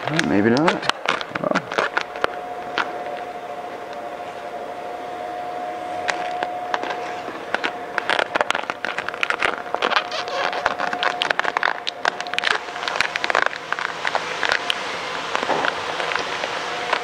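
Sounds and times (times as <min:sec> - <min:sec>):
plastic film crinkling: 0:00.0 - 0:04.1, 0:06.0 - 0:17.0
steady hum: 0:00.0 - 0:17.0
squeegee scraping: 0:05.9 - 0:17.0.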